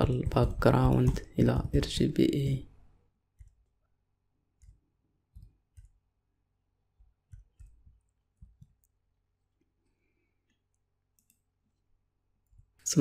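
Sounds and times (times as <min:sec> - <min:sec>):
computer keyboard keystrokes: 0:03.4 - 0:03.7.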